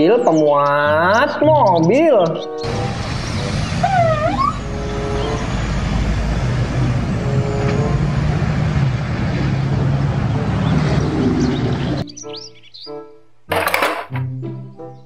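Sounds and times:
truck engine drone: 2.6s - 12.0s
tyre and road noise: 2.6s - 12.0s, 13.5s - 14.2s.

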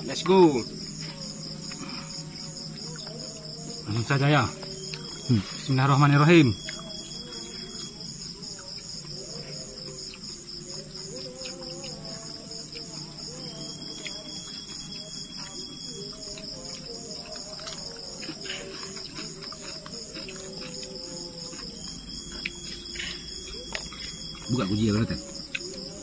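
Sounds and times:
crickets chirring in trills: 0.0s - 26.0s.

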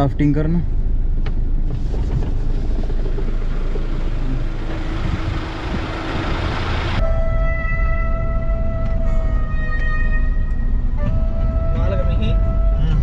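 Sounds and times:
vehicle engine and road rumble: 0.0s - 13.0s
wind through open window: 1.1s - 7.0s.

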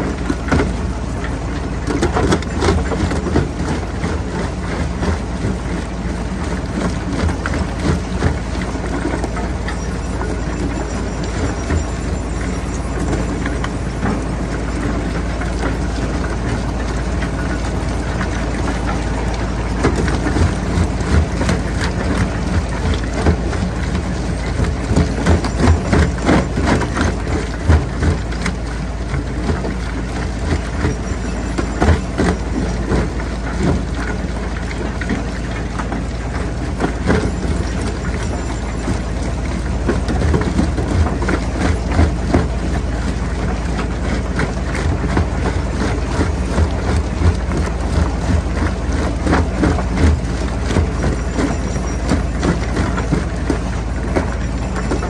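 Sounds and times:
jaw crusher running: 0.0s - 55.0s
rocks cracking and knocking: 0.1s - 55.0s.

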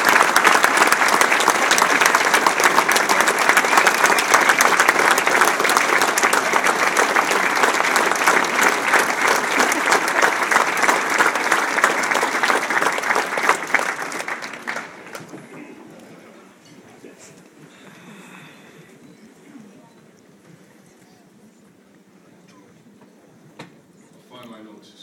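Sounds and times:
audience applauding: 0.0s - 16.2s.

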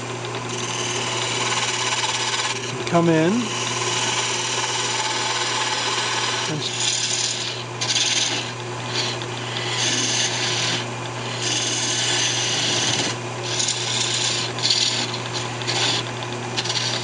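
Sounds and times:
wood lathe humming: 0.0s - 17.0s
parting tool scraping wood: 5.3s - 17.0s.

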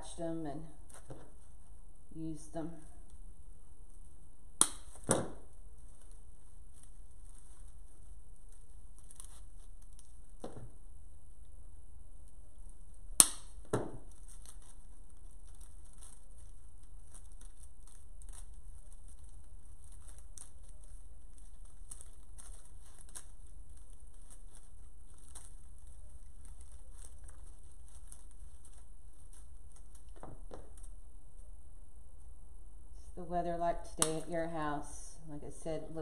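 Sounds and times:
rustling of artificial flower stems: 0.0s - 32.3s.

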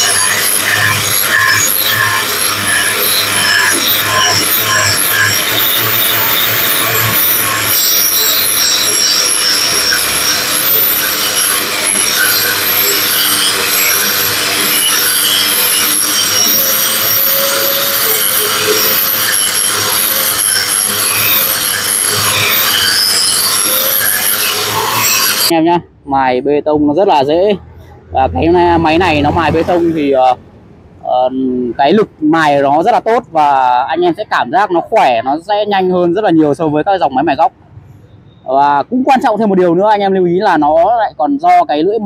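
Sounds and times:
motor whine: 0.0s - 25.5s
grinder grinding concrete: 0.0s - 25.6s.

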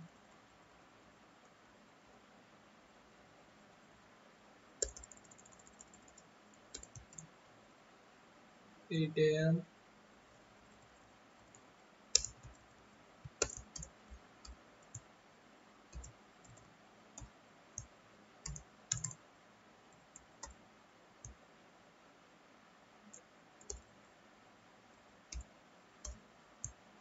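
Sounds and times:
keyboard typing clicks: 4.8s - 7.3s, 12.1s - 15.0s, 15.9s - 16.6s, 17.2s - 19.2s, 23.1s - 23.9s.

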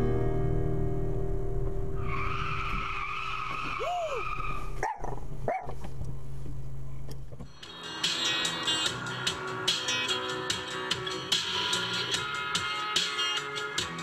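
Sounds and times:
road and engine rumble: 0.0s - 14.0s
car tyres squealing: 2.0s - 5.3s.

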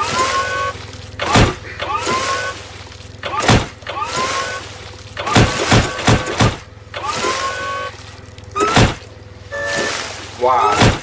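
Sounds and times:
cartoon wet impacts: 0.0s - 2.6s, 3.2s - 7.9s, 8.5s - 11.0s
forklift engine humming: 0.0s - 11.0s
short rising squeal: 7.0s - 8.0s.

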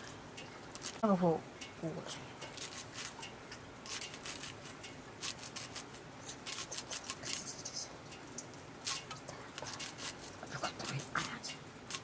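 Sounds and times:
sickle cutting fern stems: 0.7s - 1.0s, 2.4s - 7.6s, 8.8s - 11.0s.

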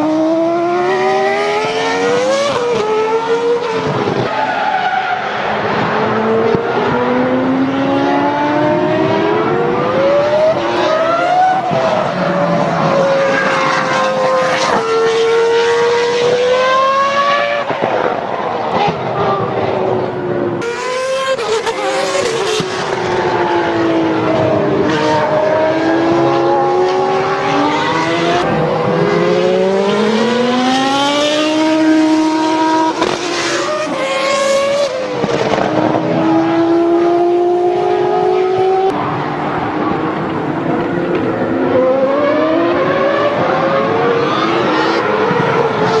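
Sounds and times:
go-kart engines revving: 0.0s - 46.0s.

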